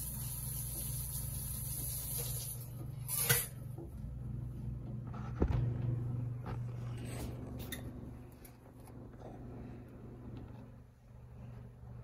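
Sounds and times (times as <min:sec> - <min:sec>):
steady low hum: 0:02.6 - 0:12.0.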